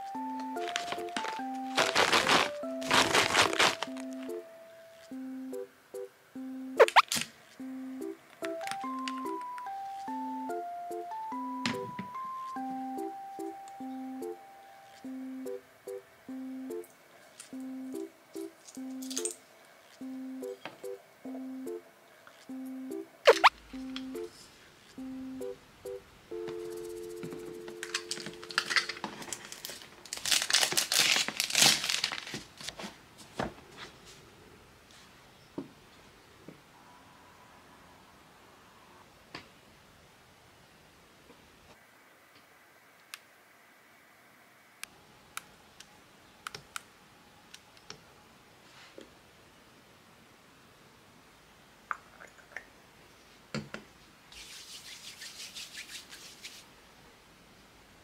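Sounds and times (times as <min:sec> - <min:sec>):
cardboard box being opened: 0:00.6 - 0:04.1
palms rubbing together: 0:54.3 - 0:56.7.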